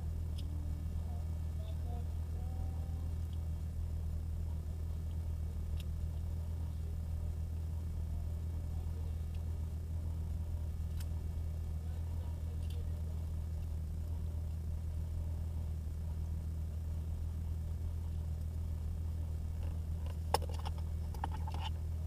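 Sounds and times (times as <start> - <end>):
car engine idling: 0.0 - 22.0
rattling and clicking: 19.4 - 21.8.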